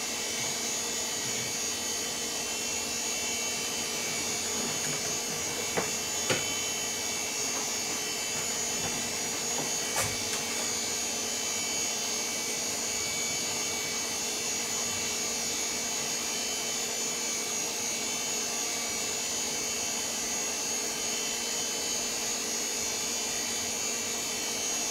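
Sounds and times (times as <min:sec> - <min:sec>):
cooling fans whirring: 0:00.0 - 0:24.9.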